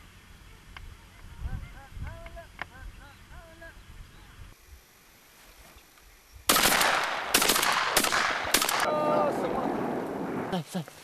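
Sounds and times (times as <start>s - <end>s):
shotgun shots with echo: 6.5s - 8.9s.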